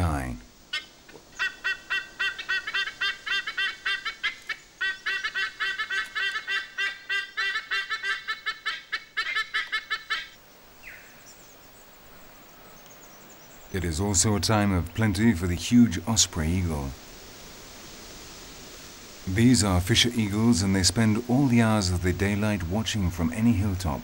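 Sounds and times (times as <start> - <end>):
eagle calling: 0.0 - 11.7.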